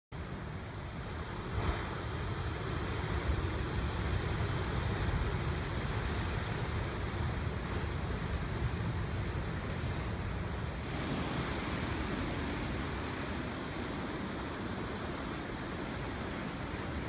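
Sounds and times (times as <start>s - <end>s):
wind noise on microphone: 0.2s - 17.0s
surf breaking on rocks: 10.8s - 17.0s.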